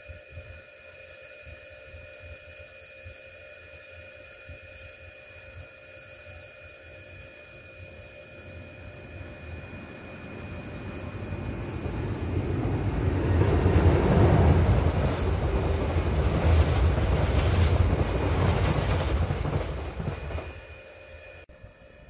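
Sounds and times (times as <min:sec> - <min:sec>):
train rumble and rail noise: 0:00.0 - 0:22.0
train wheel clicks: 0:15.4 - 0:20.6.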